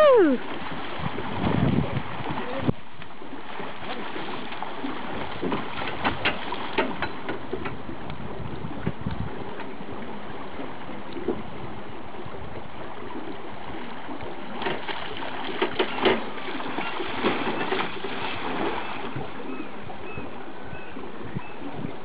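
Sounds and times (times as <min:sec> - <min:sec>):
river water: 0:00.0 - 0:22.0
wind: 0:00.0 - 0:22.0
fish splashing in a net: 0:14.5 - 0:19.1.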